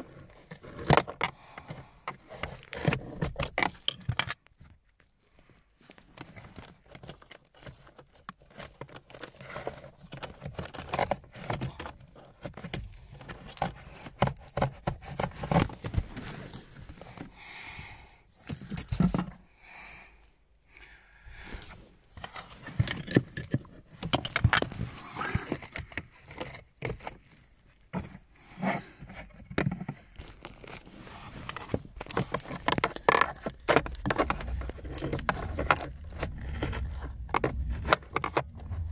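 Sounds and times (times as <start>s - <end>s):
rustling: 21.5s - 38.9s.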